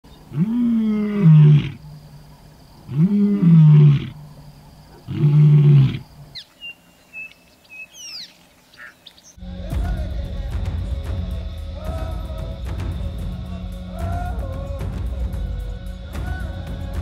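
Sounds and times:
lion roaring: 0:00.3 - 0:01.8, 0:02.9 - 0:04.2, 0:04.9 - 0:06.1
bird whistling: 0:06.3 - 0:09.4.

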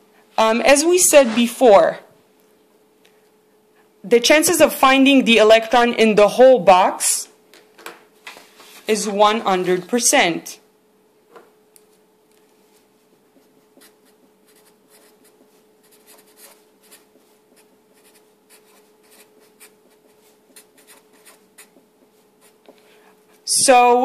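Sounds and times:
faint steady hum: 0:00.0 - 0:24.0
marker scratching on paper: 0:13.3 - 0:23.4.

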